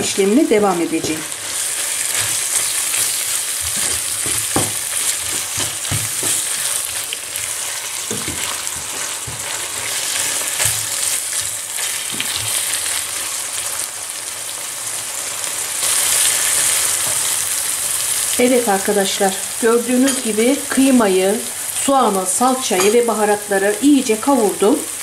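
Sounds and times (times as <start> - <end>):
meat sizzling in a pan: 0.0 - 25.0
wooden spoon scraping a pan: 1.1 - 12.8.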